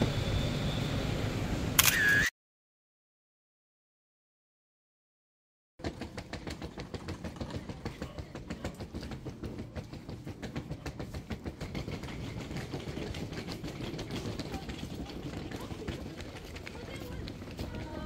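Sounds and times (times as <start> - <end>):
suitcase wheels rolling over bricks: 5.8 - 18.0.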